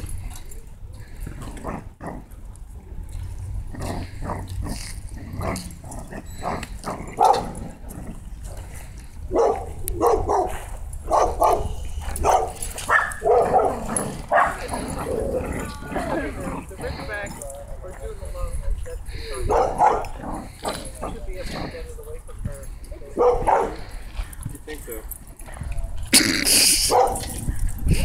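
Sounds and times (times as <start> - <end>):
dogs barking in play: 3.7 - 8.6, 9.3 - 17.1, 19.4 - 21.2, 23.2 - 23.9, 26.8 - 27.4.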